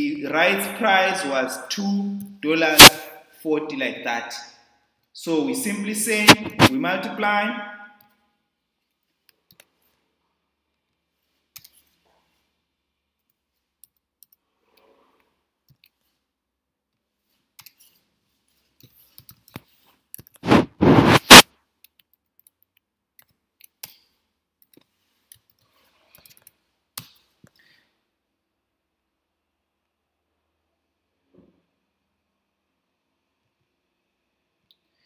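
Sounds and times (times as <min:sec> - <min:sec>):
mouse and keyboard clicks: 0:11.6 - 0:11.9.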